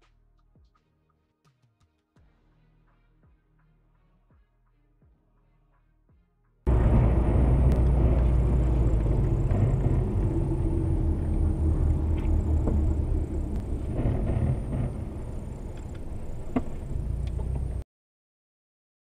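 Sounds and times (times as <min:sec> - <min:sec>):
car road rumble from inside: 0:06.7 - 0:17.8.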